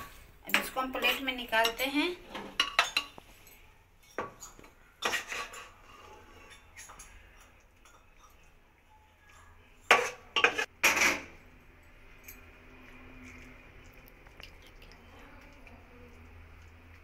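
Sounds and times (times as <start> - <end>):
metal spoon scraping cookware: 4.0 - 8.4, 9.3 - 11.4.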